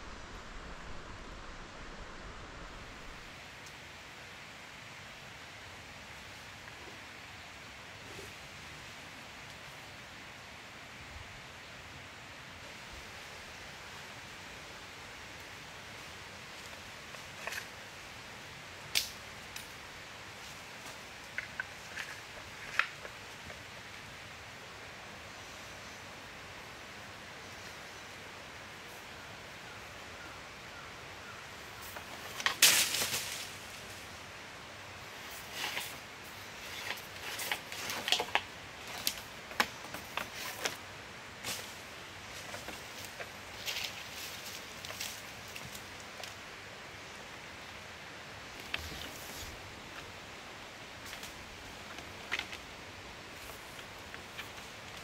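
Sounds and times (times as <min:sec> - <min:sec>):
steady hiss: 0:00.0 - 0:55.0
light clicks snaps and rustles: 0:36.7 - 0:40.8.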